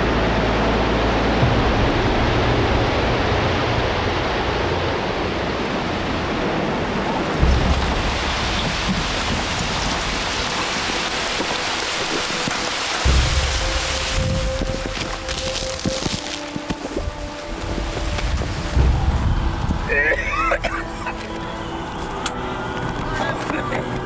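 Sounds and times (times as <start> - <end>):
deep rumble: 0.0 - 24.0
loud dense hiss of debris: 1.2 - 21.4.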